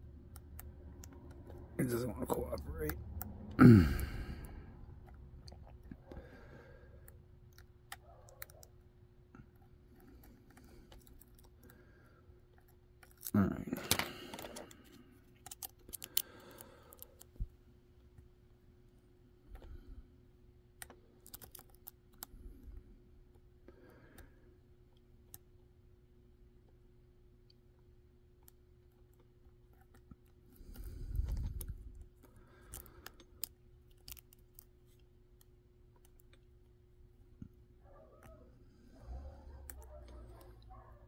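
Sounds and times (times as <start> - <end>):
faint steady hum: 0.0 - 41.0
lock pick clicking and scraping: 15.3 - 17.3, 20.8 - 22.3.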